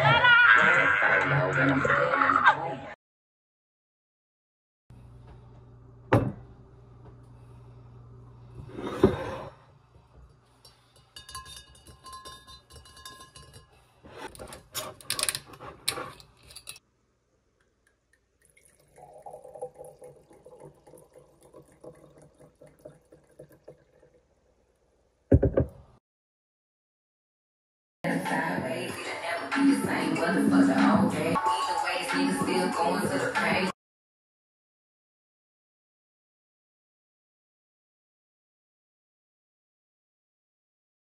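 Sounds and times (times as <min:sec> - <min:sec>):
wine pouring into glass: 0:18.2 - 0:25.0
glass bottle knocking on counter: 0:25.3 - 0:25.8.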